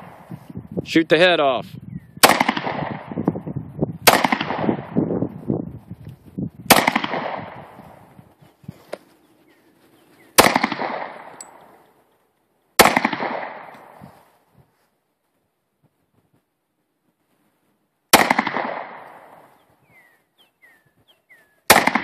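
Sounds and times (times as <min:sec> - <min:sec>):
pistol shots with echo: 0:02.2 - 0:03.2, 0:04.0 - 0:05.0, 0:06.7 - 0:07.8, 0:10.4 - 0:11.7, 0:12.8 - 0:14.0, 0:18.1 - 0:19.5, 0:21.7 - 0:22.0.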